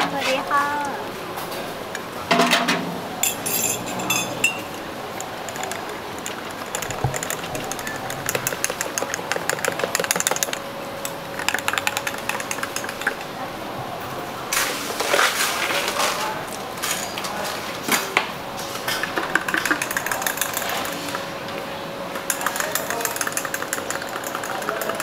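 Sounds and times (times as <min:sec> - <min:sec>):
steady background noise: 0:00.0 - 0:25.0
cups and utensils clinking: 0:01.4 - 0:13.5, 0:18.8 - 0:21.3, 0:22.2 - 0:25.0
fast small clicks: 0:05.2 - 0:13.3, 0:22.3 - 0:25.0.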